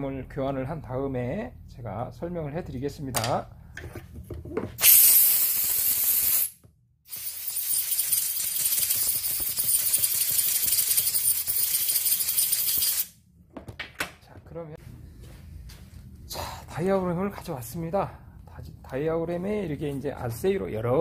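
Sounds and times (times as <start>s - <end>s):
compressed air blow gun hissing: 4.8s - 11.2s.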